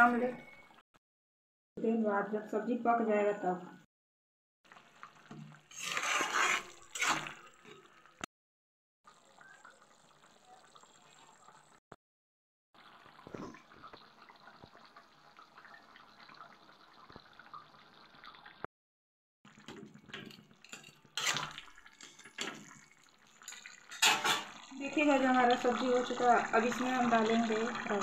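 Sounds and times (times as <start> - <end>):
curry simmering with bubbling pops: 4.7 - 8.3, 9.1 - 11.8, 12.8 - 18.7, 19.5 - 28.0
spatula scraping a pan: 5.7 - 8.0, 20.2 - 22.4, 23.9 - 24.6.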